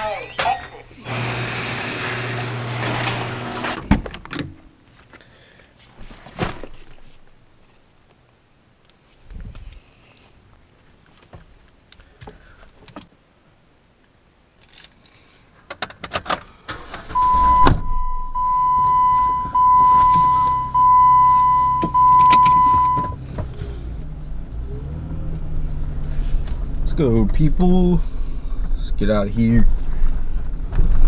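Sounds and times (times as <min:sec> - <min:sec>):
keys jangling: 0:14.6 - 0:15.5
car engine starting and idling: 0:16.6 - 0:28.8
high warning chime: 0:17.2 - 0:23.2.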